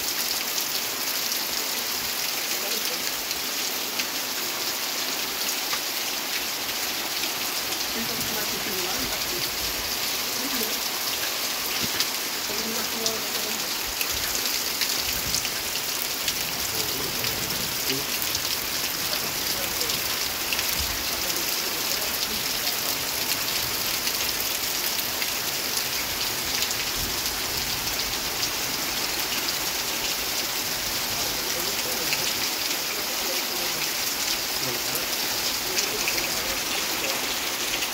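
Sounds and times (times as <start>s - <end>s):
heavy rain falling: 0.0s - 37.9s.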